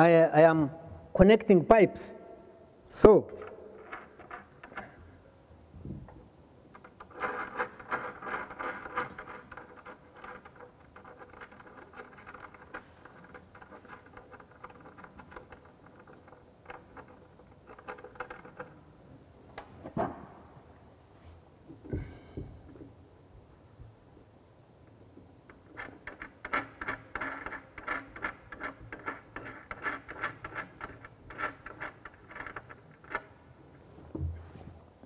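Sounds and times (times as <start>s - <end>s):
scraping and rubbing on ceramic: 3.4s - 5.2s, 6.7s - 18.9s, 25.5s - 33.4s.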